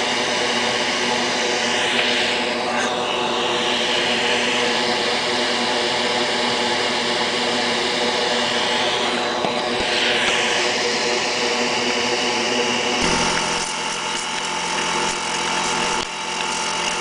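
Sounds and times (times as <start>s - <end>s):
pump motor running: 8.0s - 17.0s
air hissing through tool: 13.0s - 17.0s.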